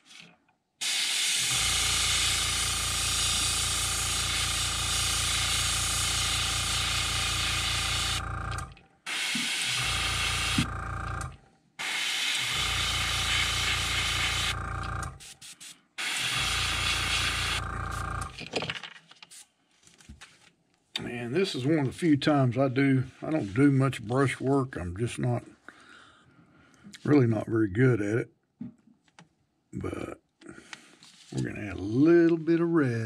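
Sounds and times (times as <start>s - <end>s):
airbrush spraying hiss: 0.8s - 2.6s, 15.2s - 17.6s
small compressor humming: 0.8s - 15.3s, 16.0s - 18.4s.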